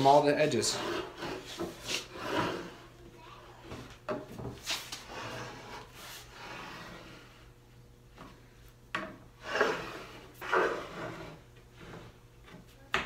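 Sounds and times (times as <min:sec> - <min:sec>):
wood board scraping on workbench: 0:00.0 - 0:02.9, 0:04.4 - 0:07.5, 0:09.4 - 0:12.7.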